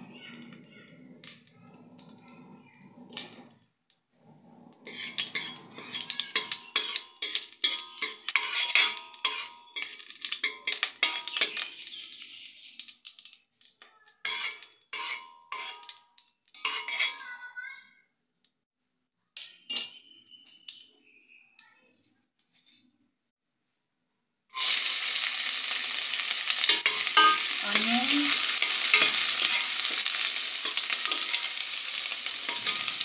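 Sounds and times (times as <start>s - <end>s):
spoon scraping a metal pot: 4.7s - 11.8s, 14.2s - 17.2s, 26.3s - 33.0s.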